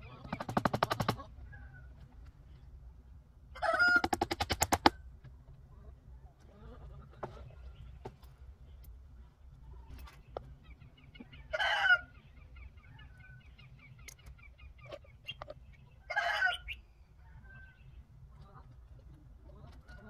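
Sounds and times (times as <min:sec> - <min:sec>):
chickens squawking: 0:00.0 - 0:02.0, 0:03.5 - 0:05.0, 0:10.6 - 0:18.7.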